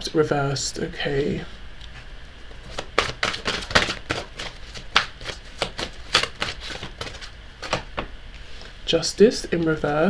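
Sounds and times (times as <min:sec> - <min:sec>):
cards being shuffled: 0:02.6 - 0:08.1.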